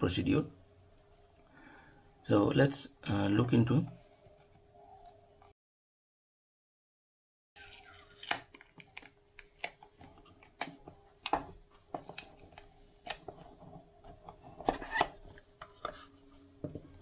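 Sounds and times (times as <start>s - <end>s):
faint steady hum: 0.0s - 5.5s.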